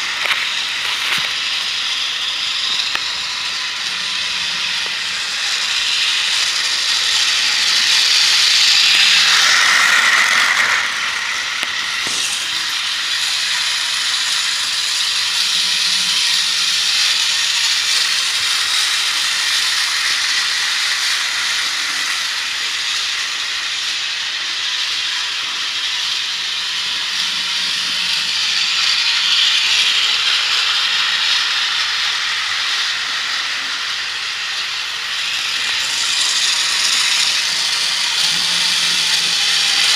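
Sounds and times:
toy train whirring hiss: 0.0s - 39.9s.

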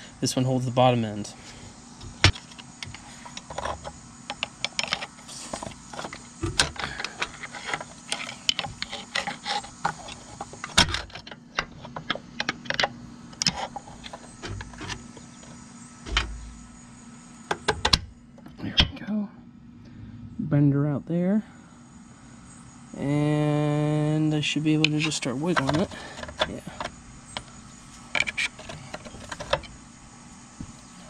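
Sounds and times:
screwdriver clicking and scraping metal: 2.0s - 15.0s, 24.8s - 29.8s
dull thump: 6.4s - 6.7s, 16.0s - 16.6s.

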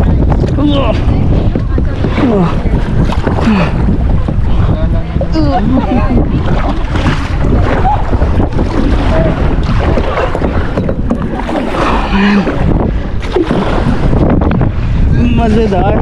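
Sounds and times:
water washing around kayak: 0.0s - 16.0s
wind buffeting microphone: 0.0s - 16.0s.

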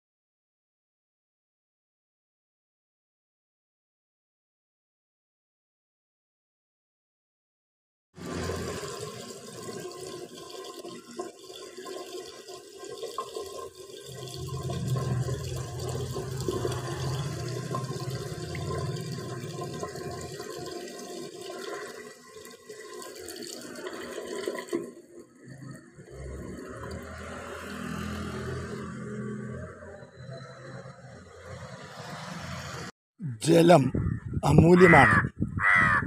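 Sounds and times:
tap water trickling into basin: 8.3s - 28.3s.

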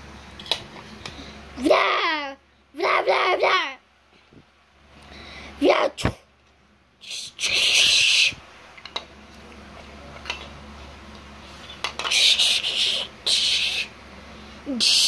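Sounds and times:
loud hissing bursts: 7.0s - 8.4s.

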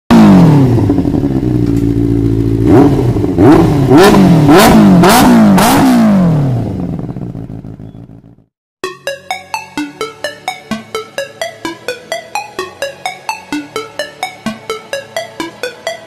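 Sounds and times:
motorcycle engine idling and revving: 0.1s - 8.5s.

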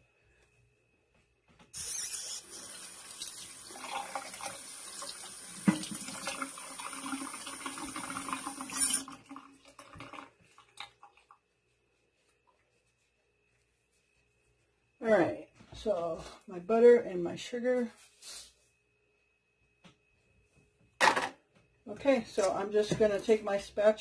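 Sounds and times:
tap running: 3.2s - 6.5s.

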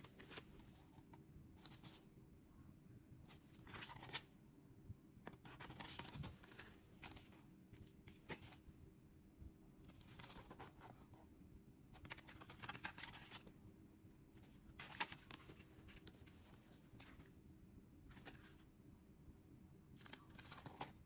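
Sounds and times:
cardboard sleeve rustling: 5.3s - 8.6s, 14.4s - 17.3s, 20.0s - 21.0s.

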